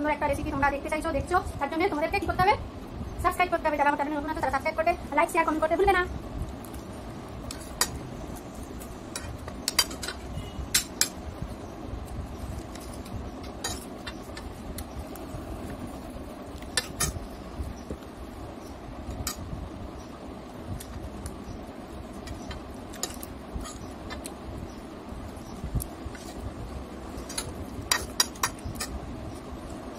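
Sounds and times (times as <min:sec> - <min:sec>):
steady background noise: 0:00.0 - 0:29.9.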